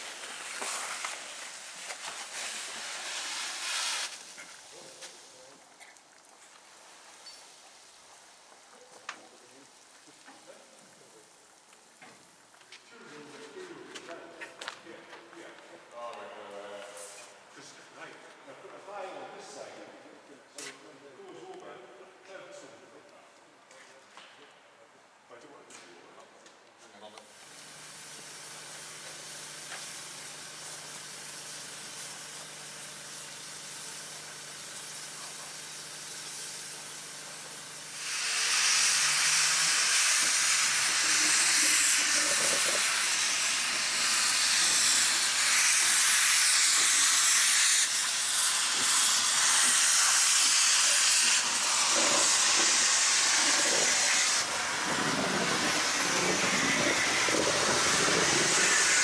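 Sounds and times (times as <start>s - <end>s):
steam locomotive hissing: 0.0s - 5.5s, 27.3s - 59.0s
loud steam hiss: 0.0s - 5.6s, 27.3s - 59.0s.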